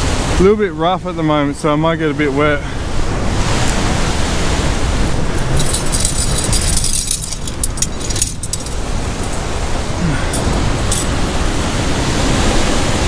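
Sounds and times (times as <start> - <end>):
wind rumbling on microphone: 2.8 - 13.0
metallic clinks of climbing gear: 5.3 - 11.8.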